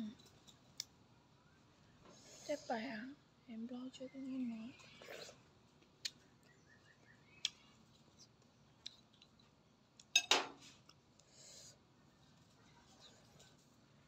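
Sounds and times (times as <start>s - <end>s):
tableware clatter: 10.2s - 10.6s.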